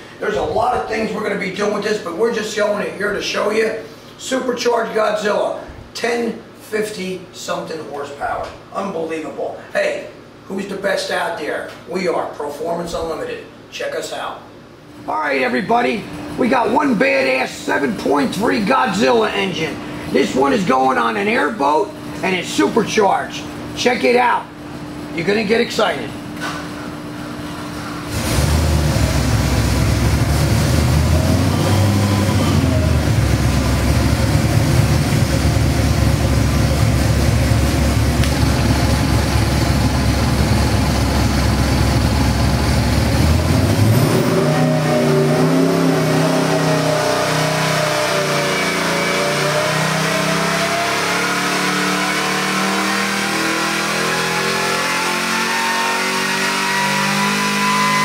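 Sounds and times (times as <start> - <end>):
supercharged engine revving on dynamometer: 28.0 - 58.0.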